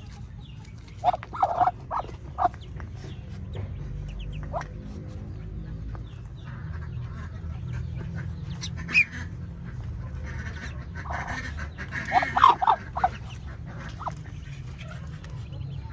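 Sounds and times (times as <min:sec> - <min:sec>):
duck and ducklings calling: 0:00.0 - 0:15.9
steady low hum: 0:00.0 - 0:15.9.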